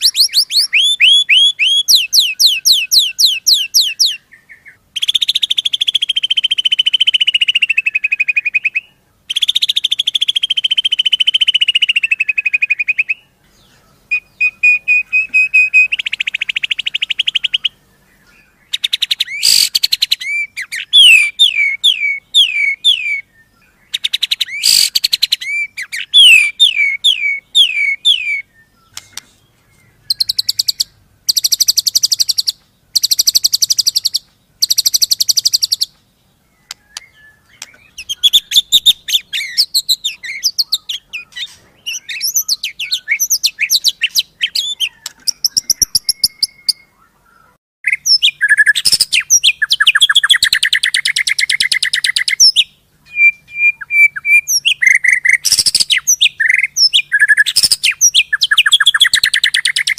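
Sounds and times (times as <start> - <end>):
bird singing: 0.0 - 59.9.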